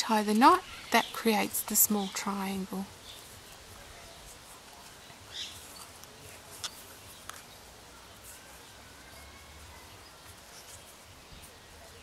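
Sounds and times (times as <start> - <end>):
soft rustle: 0.0 - 12.0
yarn and needle handling: 0.0 - 12.0.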